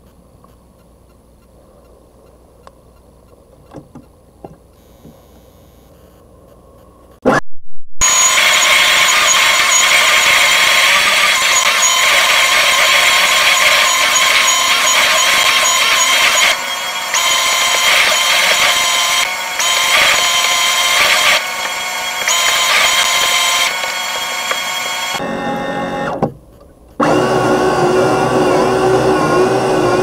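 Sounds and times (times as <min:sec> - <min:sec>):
electric motors whining: 0:08.0 - 0:26.3, 0:27.0 - 0:30.0.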